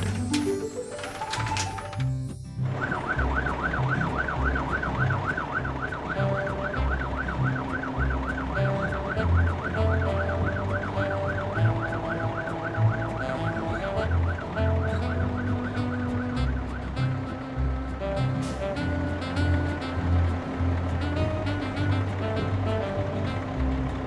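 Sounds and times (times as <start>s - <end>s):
background music: 0.0s - 24.0s
cartoon siren warbling: 2.7s - 17.3s.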